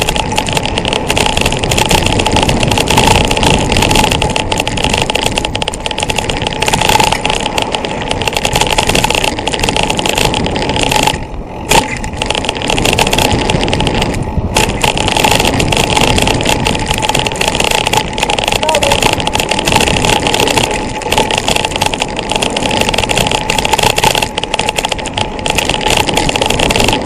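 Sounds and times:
bike rattling over dirt trail: 0.0s - 27.0s
wind rushing over microphone: 0.0s - 27.0s.

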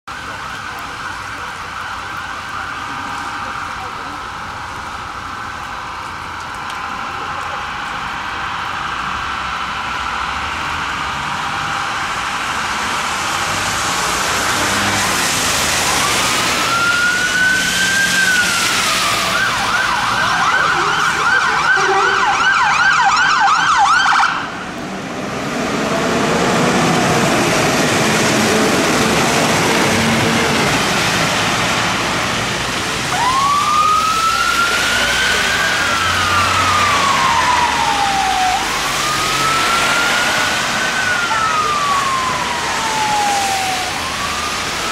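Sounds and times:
fire engine siren: 0.0s - 44.9s
tyres hissing on wet road: 0.1s - 22.5s, 24.4s - 44.9s
engine: 5.9s - 19.2s.

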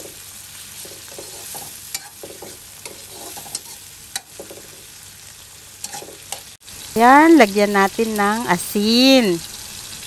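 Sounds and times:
spatula scraping wok: 0.0s - 6.6s
vegetables sizzling in butter: 0.0s - 10.0s.

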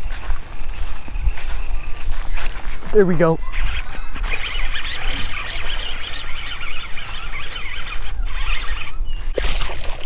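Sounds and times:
wind rumbling on microphone: 0.0s - 10.0s
fishing reel cranking: 3.5s - 10.0s.

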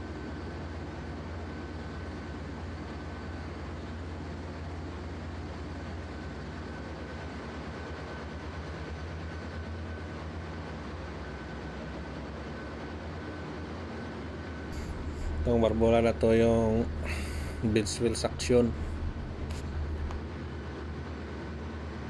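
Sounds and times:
engine-room machinery drone: 0.0s - 22.0s
thin high whine: 14.7s - 20.3s.

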